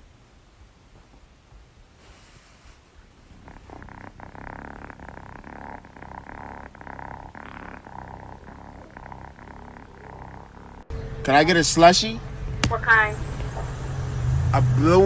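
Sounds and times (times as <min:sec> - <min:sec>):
kitten purring: 0:02.0 - 0:13.1.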